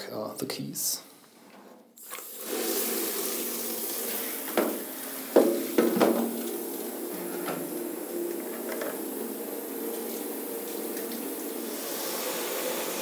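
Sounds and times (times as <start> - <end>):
water splashing into shower tray: 2.0 - 6.9
metal shower head knocking: 5.4 - 6.3.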